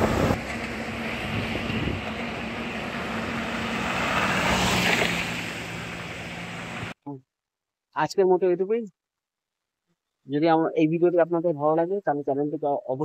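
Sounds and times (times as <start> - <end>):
vehicle passing: 0.0 - 7.0
road traffic engine hum: 0.0 - 7.1.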